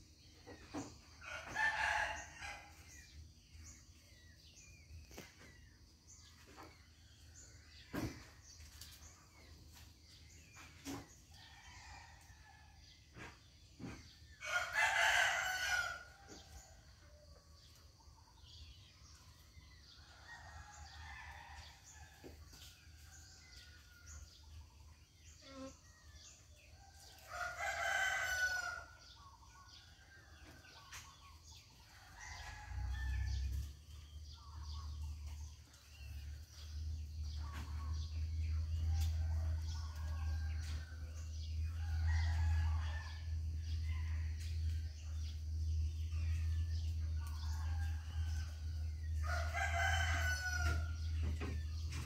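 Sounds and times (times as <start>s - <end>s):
fowl crowing: 14.5s - 16.1s.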